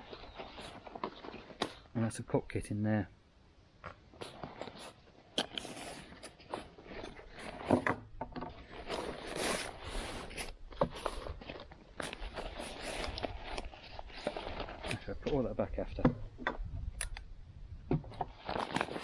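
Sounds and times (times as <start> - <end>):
fabric and plastic bag rustling: 0.0 - 1.9, 8.5 - 15.4, 18.3 - 19.0.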